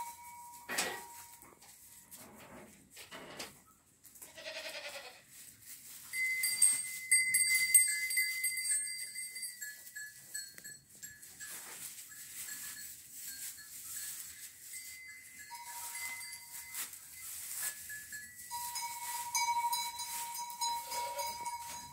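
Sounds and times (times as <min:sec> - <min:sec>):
high clear ringing: 0:00.0 - 0:01.4, 0:06.1 - 0:21.9
goat bleating: 0:04.2 - 0:05.3, 0:20.8 - 0:21.5.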